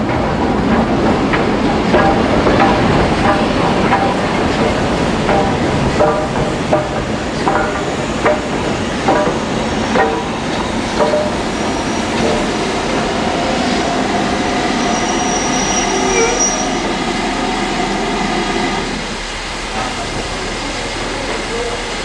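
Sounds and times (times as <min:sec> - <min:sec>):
rail rumble: 0:00.0 - 0:22.0
faint high wheel squeal: 0:14.7 - 0:16.9.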